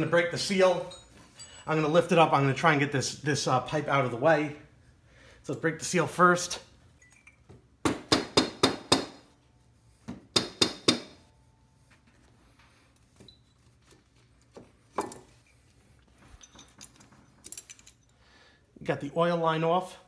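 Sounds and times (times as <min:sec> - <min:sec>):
wrench clinking on metal fittings: 0:00.0 - 0:02.1, 0:07.0 - 0:07.5, 0:16.2 - 0:18.2.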